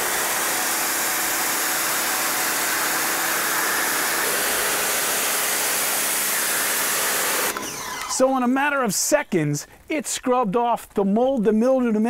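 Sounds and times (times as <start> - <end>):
pressure washer jet hissing: 0.0 - 8.3.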